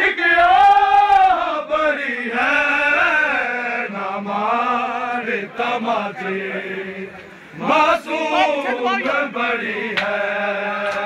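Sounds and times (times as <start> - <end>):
men chanting a lament: 0.0 - 11.0.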